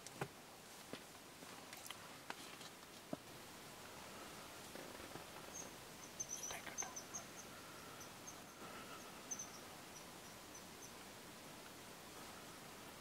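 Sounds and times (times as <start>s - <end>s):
faint high-pitched chirps: 5.5s - 11.0s.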